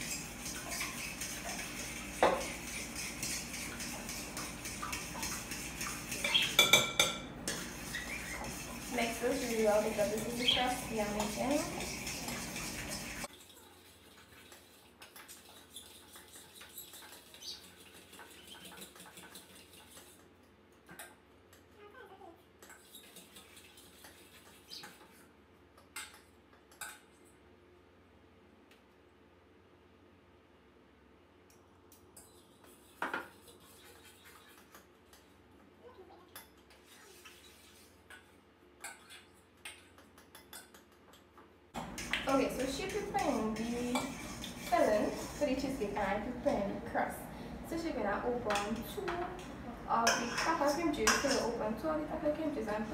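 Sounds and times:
spoon stirring in mixing bowl: 0:00.0 - 0:21.6, 0:22.6 - 0:27.2, 0:31.9 - 0:35.4, 0:36.3 - 0:47.2, 0:47.8 - 0:52.9
spoon clinking in glass bowl: 0:06.1 - 0:07.2.

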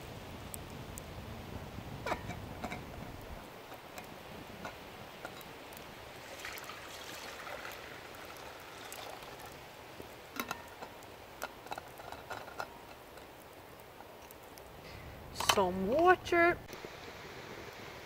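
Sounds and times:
water poured into steel pot: 0:06.1 - 0:10.9.

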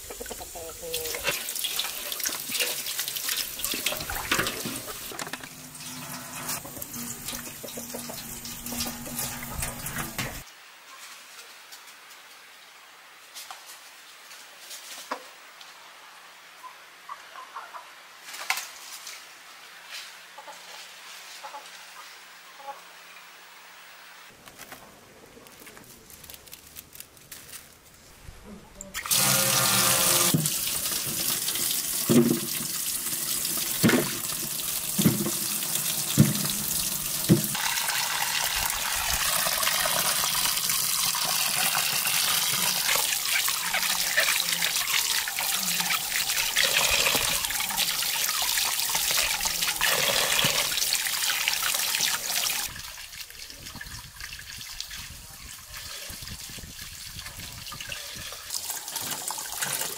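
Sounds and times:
tap water into metal basin: 0:06.5 - 0:10.4, 0:30.2 - 0:43.4.

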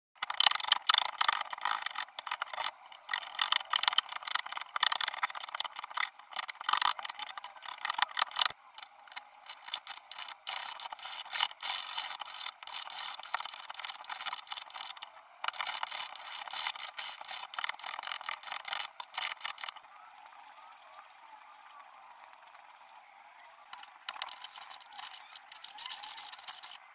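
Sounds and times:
shaving blade scraping wood: 0:09.1 - 0:19.8, 0:23.8 - 0:26.8.

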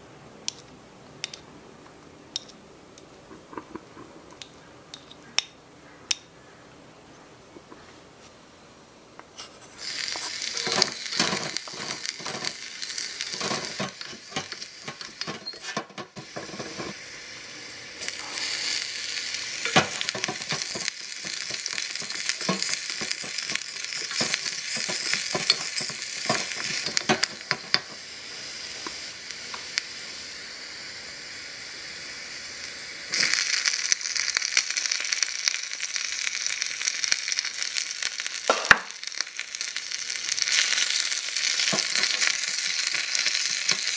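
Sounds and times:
onion sizzling in hot oil: 0:09.4 - 0:43.9
wooden spatula scraping pan: 0:13.2 - 0:17.0.

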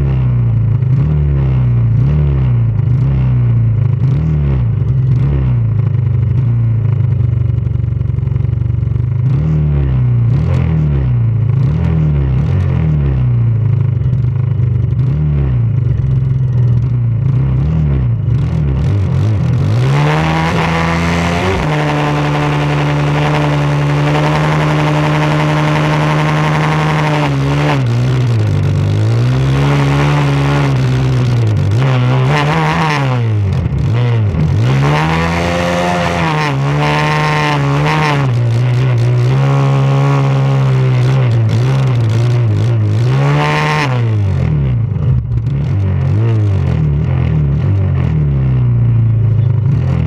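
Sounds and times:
lawn tractor engine revving: 0:19.4 - 0:44.0.

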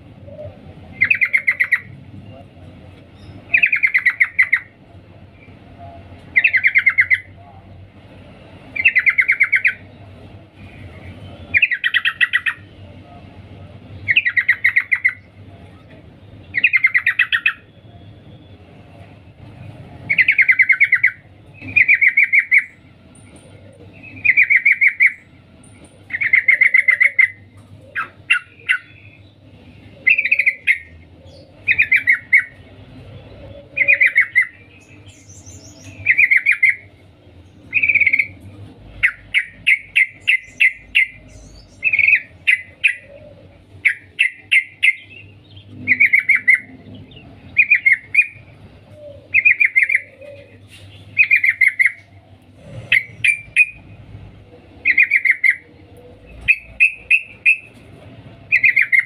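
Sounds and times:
bird chattering call: 0:03.5 - 0:04.7, 0:26.1 - 0:29.2, 0:39.0 - 0:46.8, 0:47.6 - 0:52.1, 0:52.7 - 0:53.8, 0:54.8 - 0:55.7, 0:56.3 - 0:57.8, 0:58.5 - 0:59.0.

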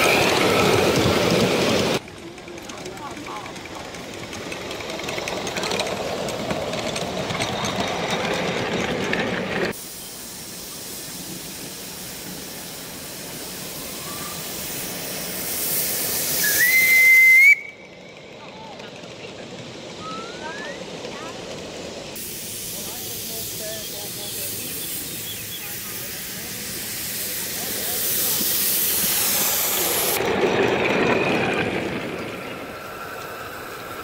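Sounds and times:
steam hissing: 0:00.0 - 0:02.0, 0:02.6 - 0:18.4, 0:19.5 - 0:34.0
steam whistle blowing: 0:16.4 - 0:17.8.

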